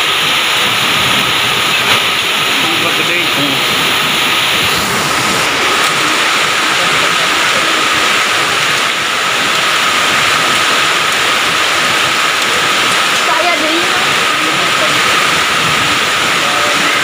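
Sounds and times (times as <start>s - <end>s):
heavy rain and hail pouring: 0.0s - 17.0s.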